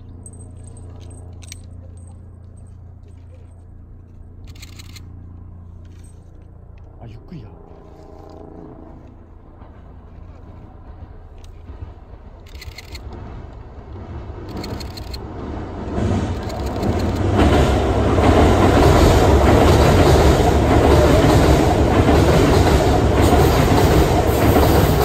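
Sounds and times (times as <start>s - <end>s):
train wheels rumbling on bridge: 8.2s - 25.0s.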